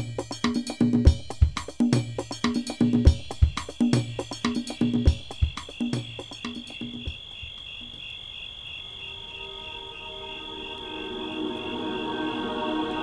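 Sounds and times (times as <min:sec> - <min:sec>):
drum hits: 0:00.0 - 0:07.2
crickets chirping: 0:00.0 - 0:13.0
soft ambient music tones: 0:09.2 - 0:13.0.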